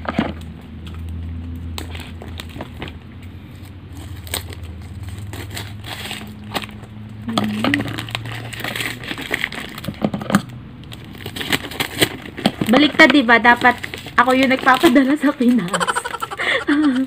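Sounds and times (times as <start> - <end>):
packing tape peeling off cardboard: 3.6 - 6.8, 10.9 - 12.8.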